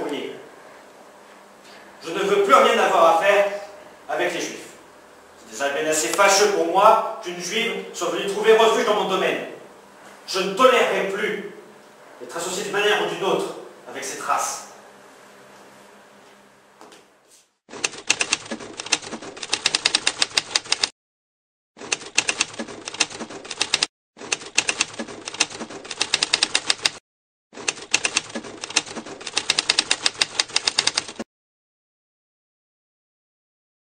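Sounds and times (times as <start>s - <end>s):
typewriter keys clacking: 17.8s - 20.9s, 21.8s - 27.0s, 27.6s - 31.2s.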